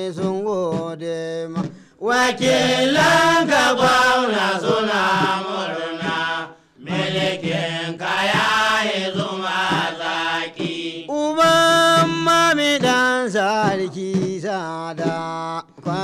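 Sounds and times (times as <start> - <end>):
voices chanting a song: 2.0 - 13.0.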